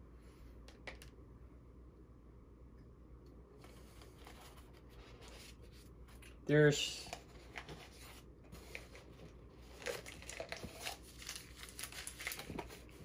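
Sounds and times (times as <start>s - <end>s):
packaging wrapper crinkling: 9.7s - 13.0s.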